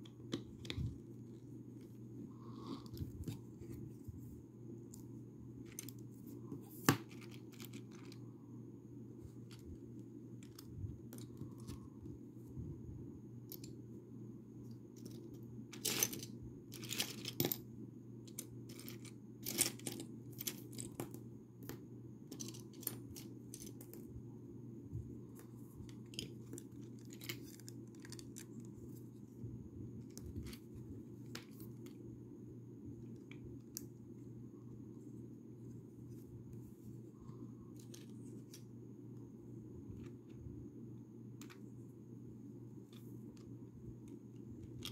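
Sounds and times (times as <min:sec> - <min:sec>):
steady low hum: 0:00.0 - 0:44.9.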